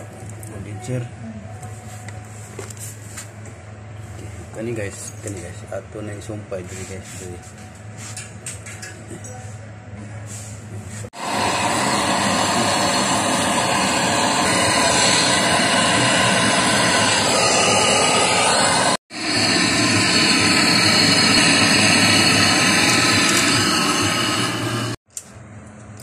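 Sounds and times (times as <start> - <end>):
torch flame hissing: 11.1 - 25.0.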